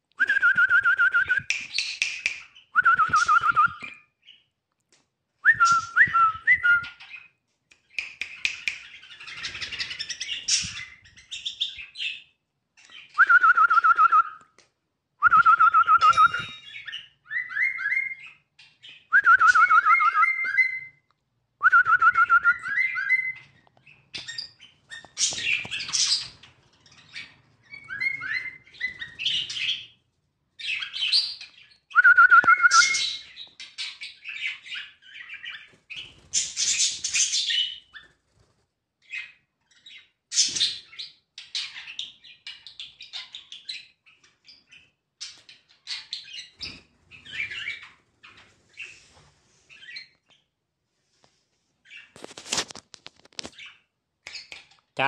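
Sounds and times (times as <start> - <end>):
bird whistled song: 0.2 - 4.4, 5.4 - 7.3, 12.9 - 14.4, 15.2 - 26.4, 27.0 - 30.0, 30.6 - 38.1, 45.9 - 48.9.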